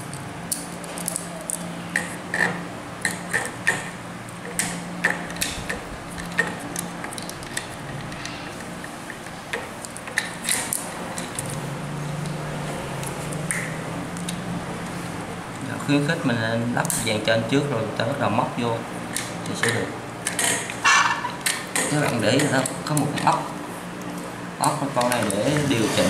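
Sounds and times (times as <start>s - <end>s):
steady low hum: 0.0s - 26.0s.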